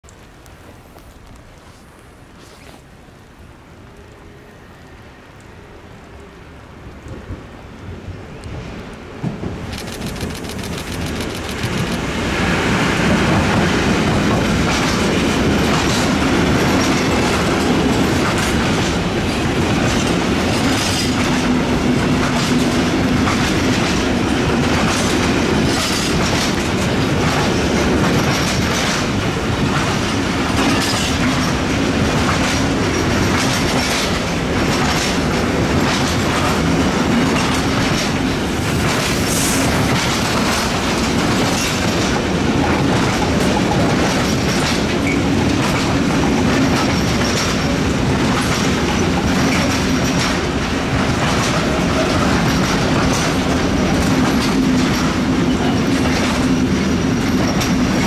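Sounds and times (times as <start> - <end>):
freight train rumbling past: 3.6 - 58.0
wheels clacking over rail joints: 9.2 - 58.0.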